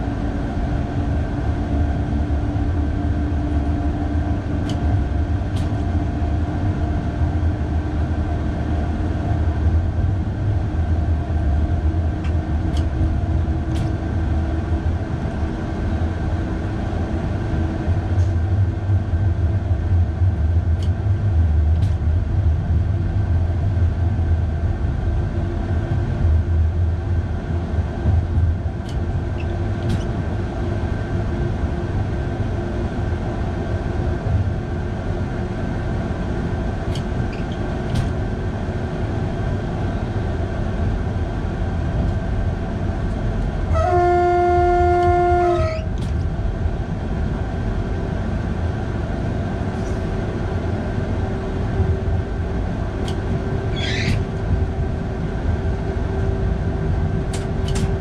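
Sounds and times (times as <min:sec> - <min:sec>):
electric train running rumble: 0:00.0 - 0:58.0
train horn: 0:43.6 - 0:46.0
brief high squeal: 0:45.4 - 0:45.9, 0:53.7 - 0:54.2.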